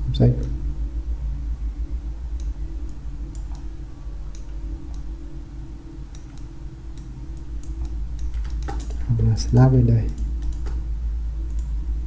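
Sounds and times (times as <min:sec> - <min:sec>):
steady low hum: 0:00.0 - 0:12.0
computer mouse clicks: 0:02.4 - 0:03.7, 0:06.1 - 0:09.0, 0:10.0 - 0:10.8, 0:11.4 - 0:11.7.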